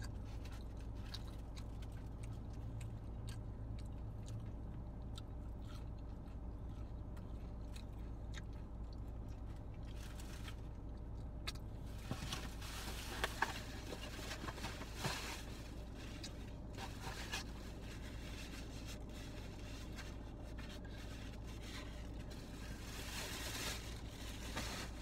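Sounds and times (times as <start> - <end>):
person chewing food: 0.0 - 12.1
food wrapper rustling: 12.2 - 25.0.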